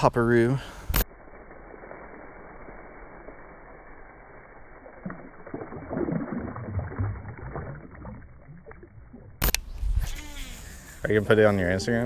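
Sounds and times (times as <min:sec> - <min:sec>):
water splashing and sloshing: 0:04.6 - 0:09.8.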